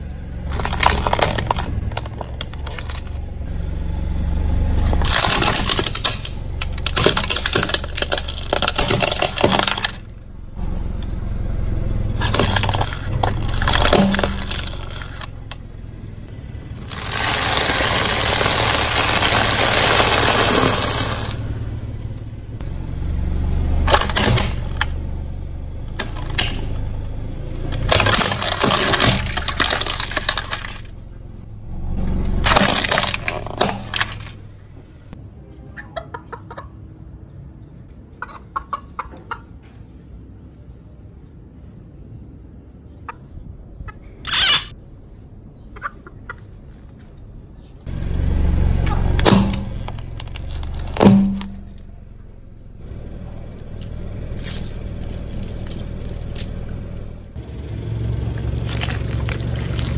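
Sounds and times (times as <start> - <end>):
car tyre crushing objects: 0.0 - 35.2, 47.8 - 59.9
sharp cracks and snaps: 0.5 - 3.3, 4.8 - 10.1, 27.7 - 31.0, 32.4 - 34.4, 48.8 - 52.0, 52.8 - 57.3, 58.4 - 59.9.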